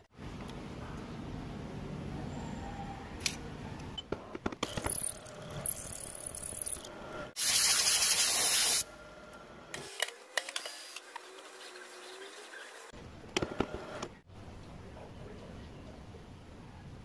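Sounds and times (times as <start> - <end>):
compressed air burst: 7.4 - 8.8.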